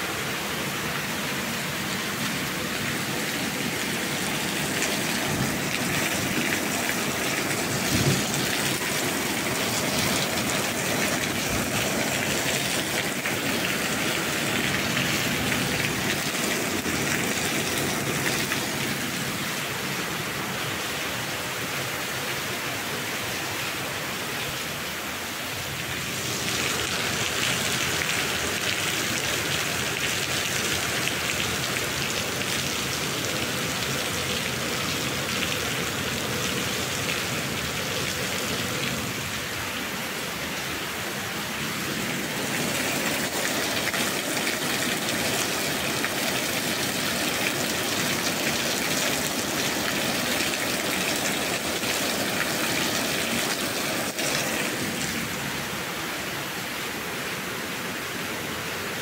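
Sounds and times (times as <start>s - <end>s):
steady rain falling: 0.0s - 59.0s.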